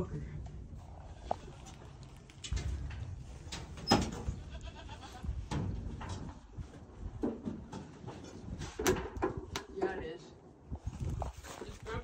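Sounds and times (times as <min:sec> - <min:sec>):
animal bleating: 0:04.3 - 0:05.3.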